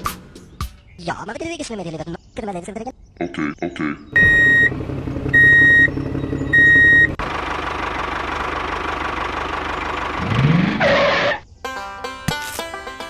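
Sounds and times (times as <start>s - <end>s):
loud beeps: 4.2s - 4.7s, 5.3s - 5.9s, 6.5s - 7.2s
small tractor engine running: 4.2s - 10.7s.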